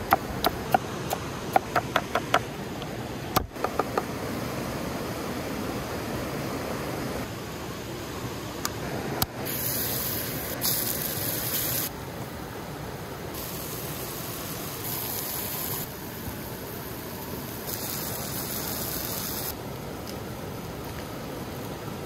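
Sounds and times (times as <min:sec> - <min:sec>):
meat sizzling on hot stone: 0:09.5 - 0:11.9, 0:13.4 - 0:15.9, 0:17.5 - 0:19.5.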